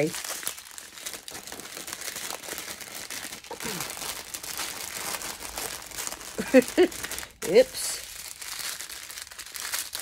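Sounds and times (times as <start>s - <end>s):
plastic bags crinkling: 0.0s - 10.0s.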